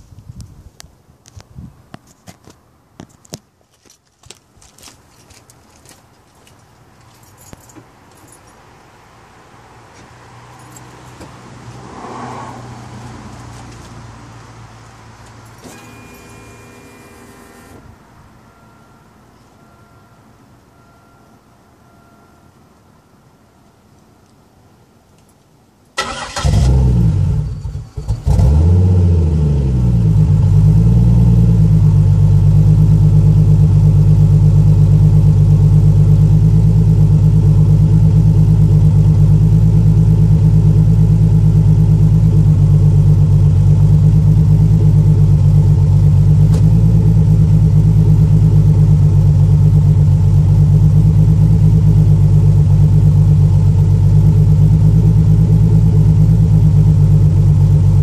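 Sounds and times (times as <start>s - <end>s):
engine starting and idling: 26.0s - 28.7s.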